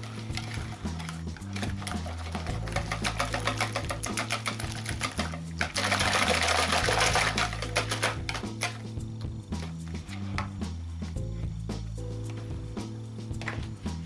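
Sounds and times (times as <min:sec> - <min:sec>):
background music: 0:00.0 - 0:14.0
whisk clicking against bowl: 0:00.4 - 0:08.8.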